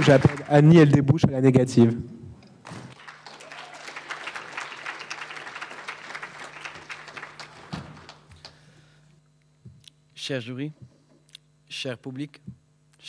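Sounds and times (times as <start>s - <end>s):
audience applauding: 0.0s - 0.8s, 2.9s - 8.6s.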